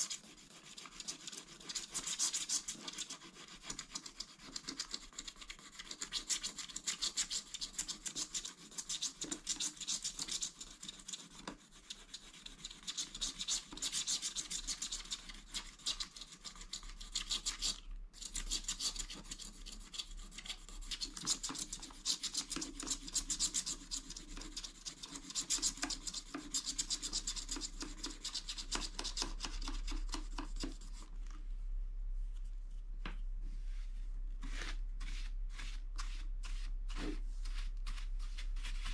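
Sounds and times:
fingers rubbing a card: 0:00.0 - 0:31.1.

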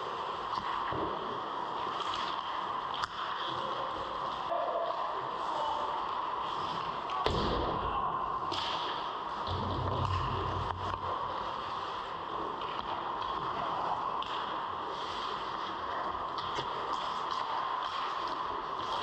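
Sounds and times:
skates scraping ice: 0:00.0 - 0:04.5, 0:08.4 - 0:19.0
stick and puck clacks: 0:00.4 - 0:05.0, 0:08.4 - 0:11.8, 0:12.5 - 0:19.0.

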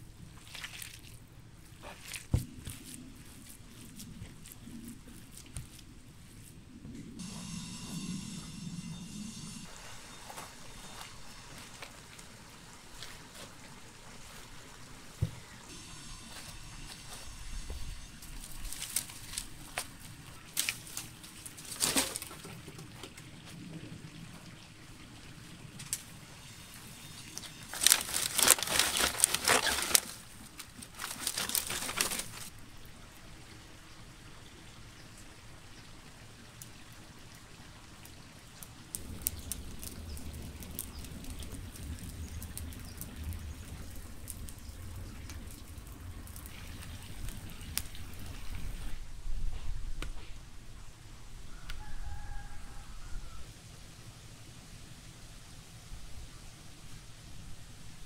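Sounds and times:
crunchy rustle of firewood: 0:00.0 - 0:07.0, 0:09.7 - 0:23.9, 0:25.8 - 0:32.6, 0:38.0 - 0:50.5
low steady rumble: 0:01.1 - 0:21.3, 0:38.9 - 0:51.6
dry sticks snapping: 0:18.3 - 0:22.4, 0:27.3 - 0:32.5, 0:38.9 - 0:48.2.

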